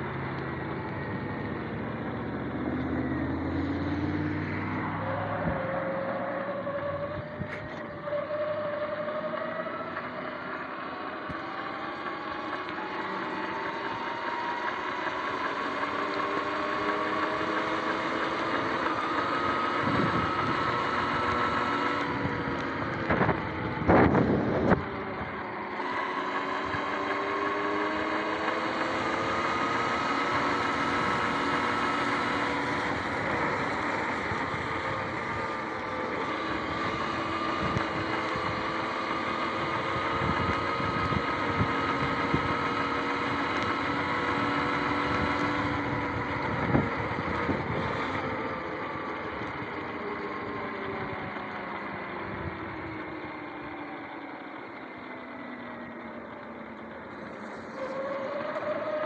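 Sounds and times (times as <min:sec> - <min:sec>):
electric motor whining: 0:00.0 - 0:59.0.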